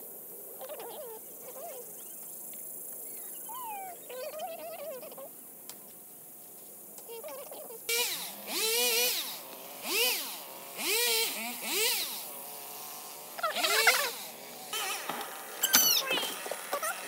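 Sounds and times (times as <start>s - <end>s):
chainsaw revving while cutting wood: 7.9s - 15.6s.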